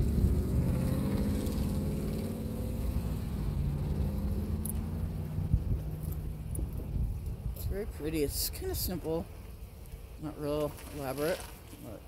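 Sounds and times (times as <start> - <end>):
car engine hum: 0.0 - 10.2.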